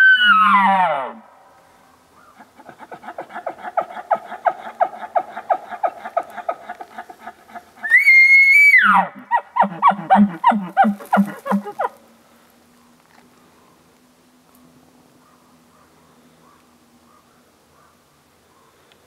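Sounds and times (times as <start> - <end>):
elk bugling: 2.3 - 12.0.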